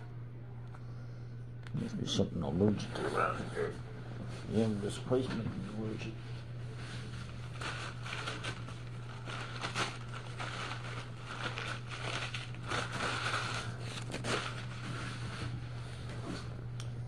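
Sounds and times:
low electrical hum: 0.0s - 17.0s
paper towel crinkling: 6.8s - 16.5s.

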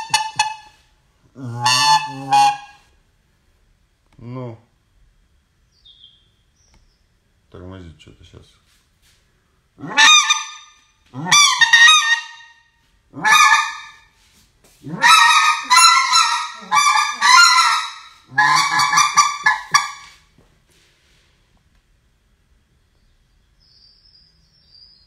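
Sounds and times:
goose call honking: 0.0s - 0.8s, 1.4s - 2.9s, 9.8s - 12.6s, 13.2s - 14.1s, 14.8s - 20.2s.

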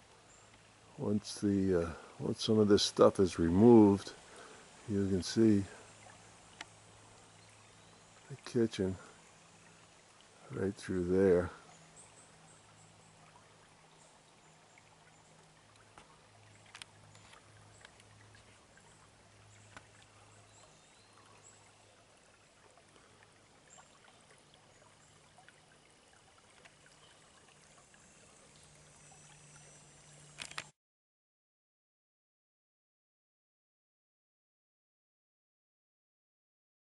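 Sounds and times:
brook trickling: 0.0s - 30.7s
faint clicks: 6.5s - 6.8s, 15.7s - 18.5s, 19.7s - 20.1s.

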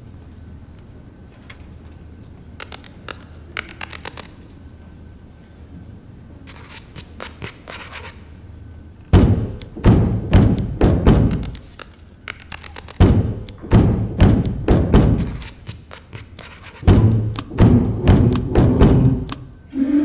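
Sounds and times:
heavy percussive thumps: 9.1s - 11.6s, 13.0s - 15.7s, 16.8s - 19.6s.

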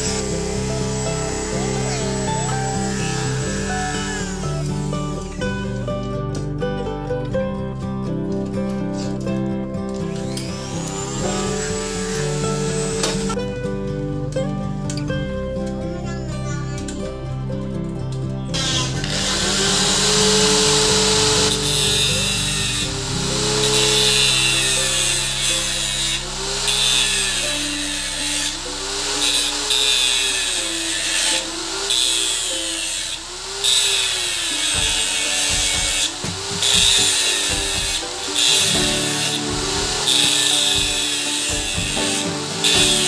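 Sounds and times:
electric power tool on metal: 0.0s - 5.8s, 10.0s - 13.4s, 18.6s - 43.0s
background music: 0.0s - 43.0s.

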